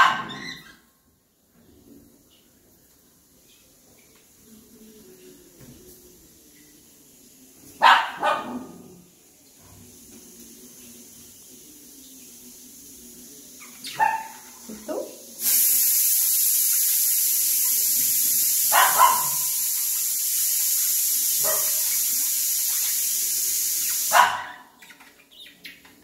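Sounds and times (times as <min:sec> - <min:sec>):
dog barking: 0:00.0 - 0:00.5, 0:07.8 - 0:08.9, 0:13.9 - 0:14.4, 0:18.7 - 0:19.6, 0:21.4 - 0:21.8, 0:24.1 - 0:24.7
loud rushing hiss: 0:15.4 - 0:24.2.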